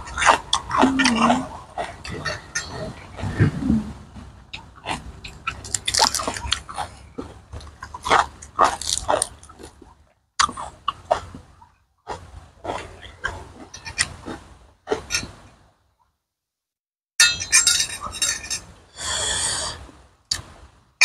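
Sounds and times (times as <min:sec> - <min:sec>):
mouth smacking: 0:00.3 - 0:04.2
crunchy chewing: 0:04.6 - 0:11.4
lettuce leaves tearing: 0:08.6 - 0:09.3.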